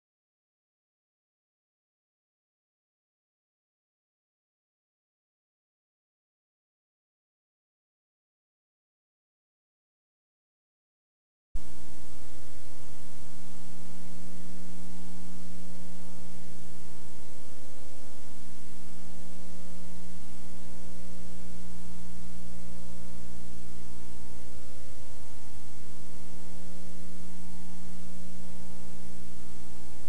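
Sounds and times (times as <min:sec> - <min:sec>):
electrical mains hum: 0:11.6 - 0:30.0
film hiss: 0:11.6 - 0:30.0.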